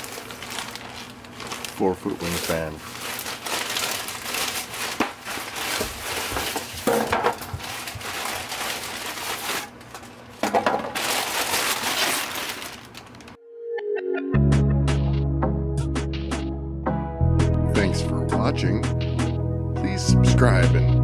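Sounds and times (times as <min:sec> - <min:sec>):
plastic wrapping crinkling: 0:00.0 - 0:13.4
styrofoam parts knocking on desk: 0:05.8 - 0:08.1, 0:10.4 - 0:11.0.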